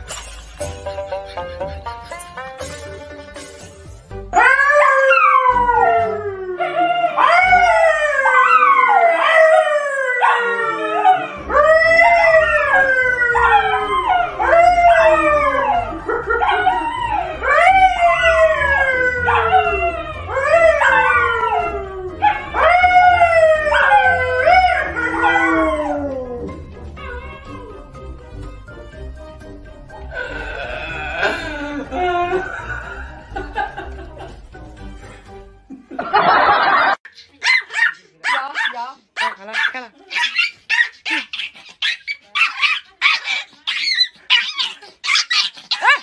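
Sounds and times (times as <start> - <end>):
dogs howling: 4.3 - 27.9
man howling: 30.2 - 32.7.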